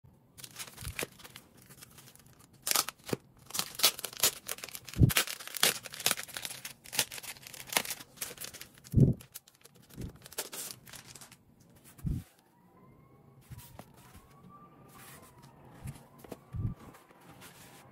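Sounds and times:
plastic sleeve crinkling: 0.4s - 12.4s.

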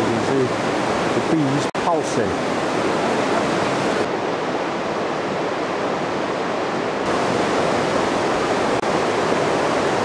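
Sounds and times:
running water rushing: 0.0s - 10.0s.

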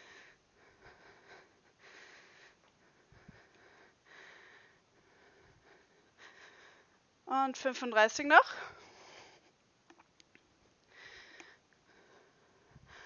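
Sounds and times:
heavy breathing: 0.0s - 7.0s, 10.9s - 13.0s.

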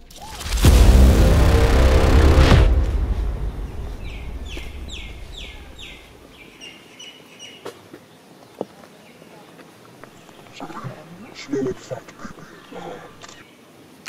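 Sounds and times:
low rumble: 0.0s - 6.2s
dramatic music hit: 0.1s - 6.1s
bird calling: 3.6s - 7.9s, 10.0s - 13.6s.

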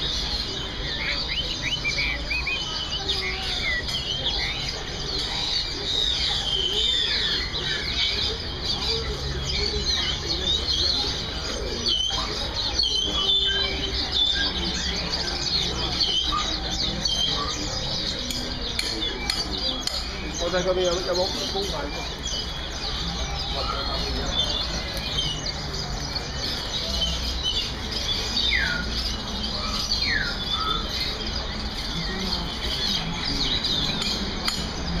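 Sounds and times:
songbirds chirping and trilling: 0.0s - 35.0s.

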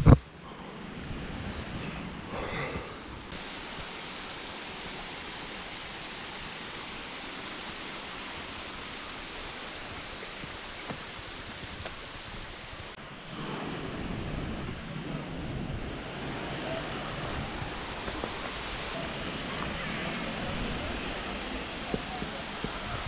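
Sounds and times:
waterfall hissing: 2.2s - 13.0s, 15.9s - 23.0s.

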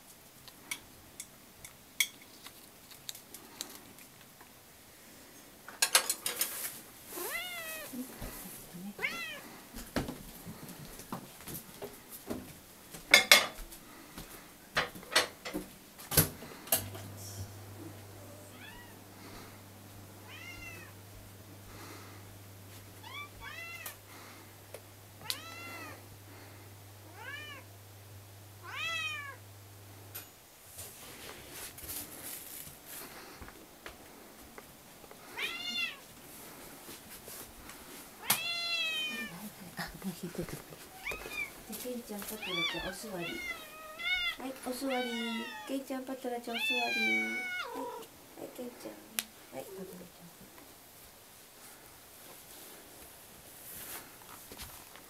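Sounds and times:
cats meowing: 7.1s - 8.3s, 8.9s - 9.6s, 18.3s - 19.0s, 20.2s - 21.0s, 23.0s - 24.0s, 25.2s - 26.0s, 27.1s - 27.7s, 28.6s - 29.4s, 35.2s - 36.1s, 38.2s - 39.5s, 40.9s - 41.6s, 42.3s - 45.8s, 46.5s - 48.1s
low steady hum: 13.7s - 55.0s.

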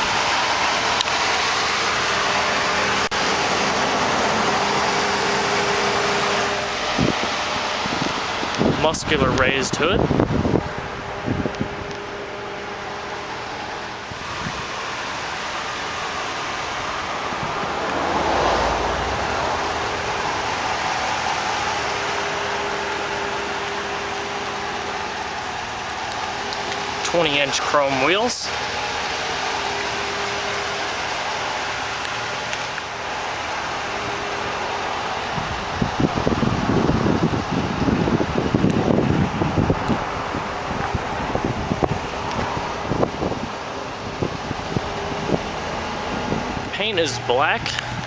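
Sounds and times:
outdoor noise hiss: 0.0s - 48.0s
truck engine idling: 0.0s - 48.0s
low rumble: 16.8s - 21.0s.

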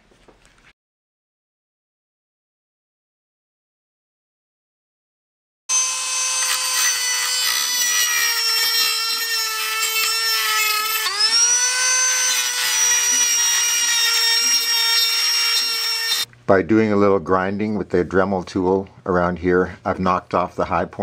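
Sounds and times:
rotary tool grinding metal: 5.7s - 16.3s.

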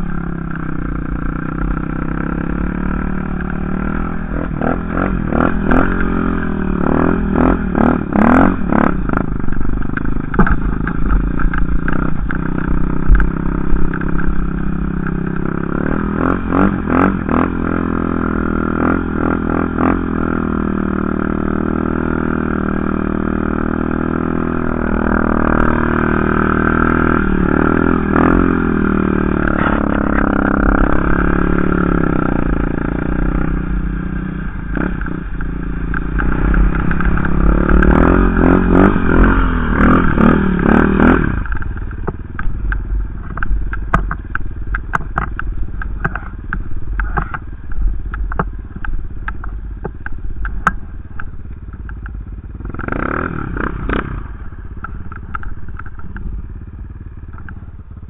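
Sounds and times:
quad bike engine revving: 0.0s - 58.0s
scattered clicks and knocks: 9.1s - 15.5s, 34.7s - 54.1s, 54.8s - 56.3s.

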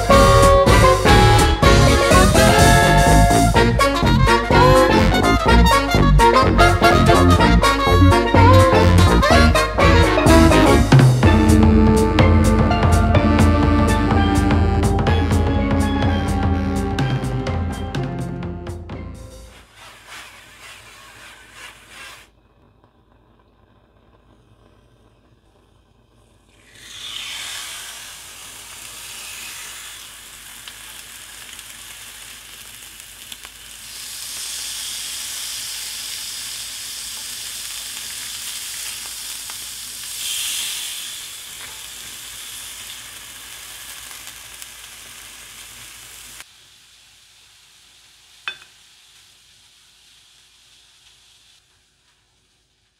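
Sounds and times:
chicken sizzling on grill pan: 26.6s - 52.9s.

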